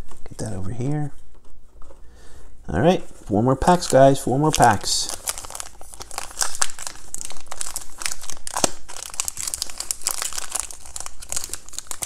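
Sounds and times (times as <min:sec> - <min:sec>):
card wrapper crinkling and tearing: 0:03.6 - 0:12.0.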